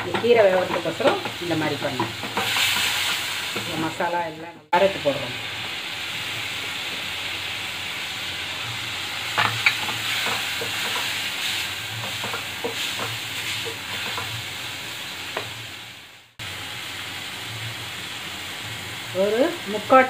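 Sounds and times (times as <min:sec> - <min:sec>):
vegetables sizzling in hot oil: 0:00.0 - 0:20.0
wooden spatula scraping a pan: 0:09.4 - 0:14.5.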